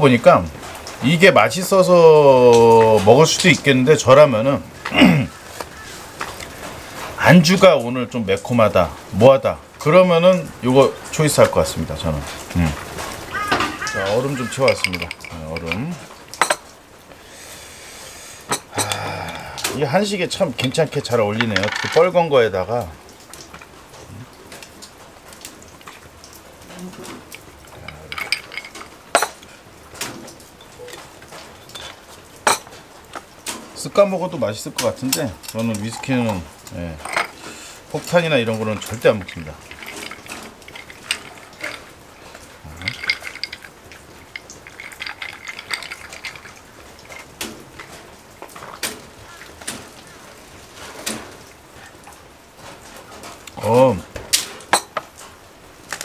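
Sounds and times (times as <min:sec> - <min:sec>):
whisky pouring into glass: 0:12.4 - 0:16.1, 0:27.8 - 0:28.9, 0:38.0 - 0:48.0
glass and ice clinks: 0:13.4 - 0:16.6, 0:27.8 - 0:29.4, 0:31.6 - 0:32.7, 0:37.0 - 0:37.4, 0:38.0 - 0:42.0, 0:42.7 - 0:47.9, 0:54.7 - 0:55.0.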